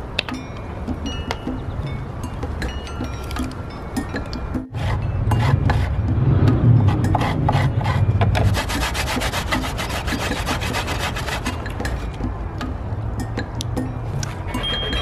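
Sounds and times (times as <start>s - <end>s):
coconut grated on metal grater: 6.8s - 12.0s, 14.5s - 15.0s.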